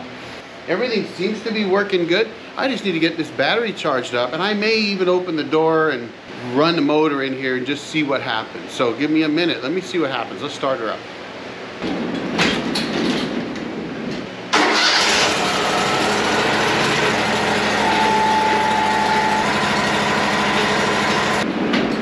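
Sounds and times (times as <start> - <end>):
high whine: 11.8 - 22.0
sawmill engine running: 14.5 - 21.5.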